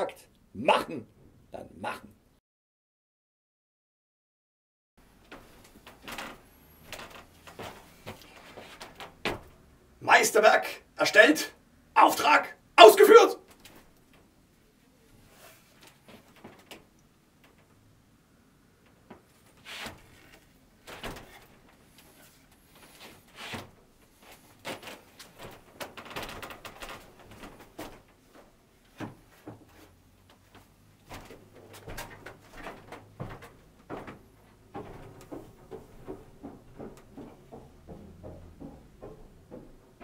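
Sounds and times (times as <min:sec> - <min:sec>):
knocks and clunks of handling objects: 0:05.1 - 0:09.7, 0:15.8 - 0:17.8, 0:18.8 - 0:40.0.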